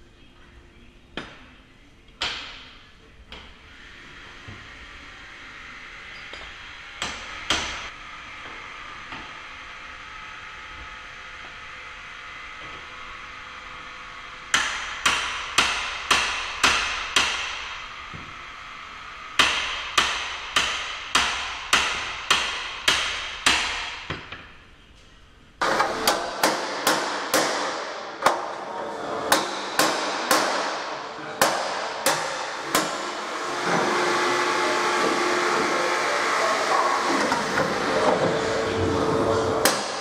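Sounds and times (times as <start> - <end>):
hammer striking steel pry bar: 14.5 - 17.6, 19.4 - 24.1, 26.0 - 28.4, 29.3 - 33.1, 39.6 - 40.0
loud steady noise: 25.6 - 40.0.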